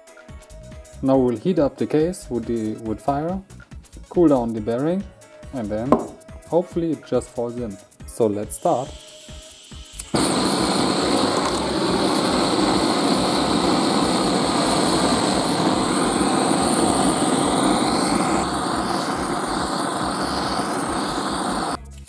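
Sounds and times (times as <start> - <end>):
blowtorch flame hissing: 5.9 - 6.2, 8.5 - 21.8
blowtorch flaring up: 9.2 - 21.8.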